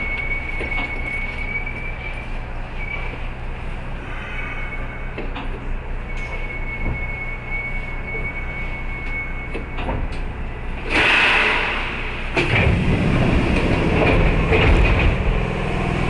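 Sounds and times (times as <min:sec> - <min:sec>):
train high-pitched squeal: 0:00.0 - 0:10.0
train rumbling with knocks: 0:00.0 - 0:16.0.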